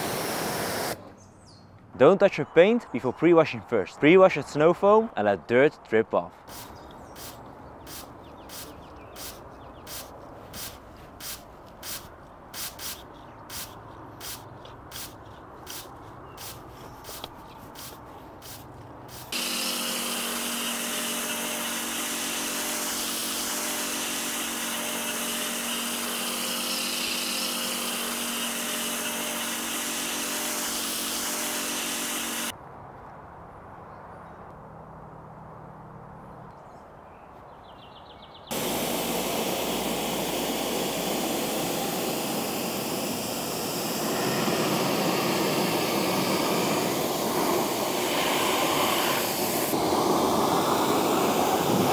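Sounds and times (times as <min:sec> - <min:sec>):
foam cannon spraying hiss: 0:00.0 - 0:01.0, 0:06.5 - 0:32.5, 0:38.5 - 0:51.9
trigger sprayer squirting: 0:06.5 - 0:32.5, 0:38.5 - 0:51.9
pressure washer motor hum: 0:16.4 - 0:32.5, 0:38.5 - 0:51.9.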